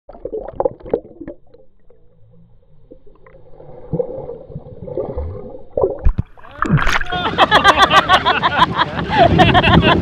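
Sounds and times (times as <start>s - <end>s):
underwater gurgling and sloshing: 0.1s - 10.0s.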